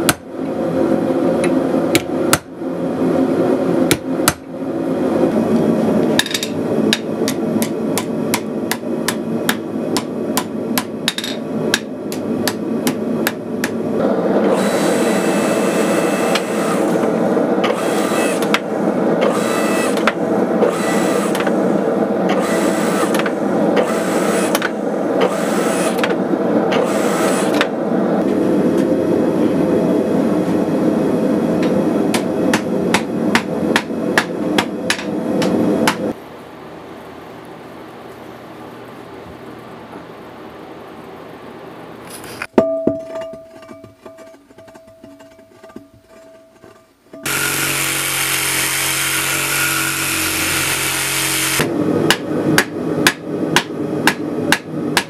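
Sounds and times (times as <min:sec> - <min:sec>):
hammer striking hot steel: 0:03.9 - 0:04.5, 0:06.2 - 0:13.8, 0:31.6 - 0:36.1, 0:52.1 - 0:55.0
steady rushing noise: 0:20.0 - 0:36.4.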